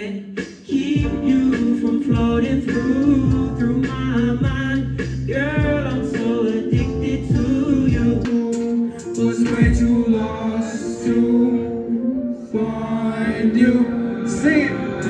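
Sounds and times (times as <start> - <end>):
man singing into microphone: 0.0 - 15.0
deep sliding bass hits: 6.7 - 8.3.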